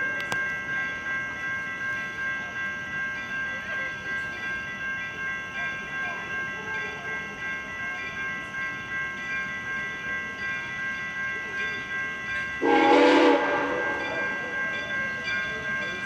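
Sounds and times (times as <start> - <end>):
crossing warning bell ringing: 0.0 - 16.0
steam locomotive whistle: 12.6 - 14.3.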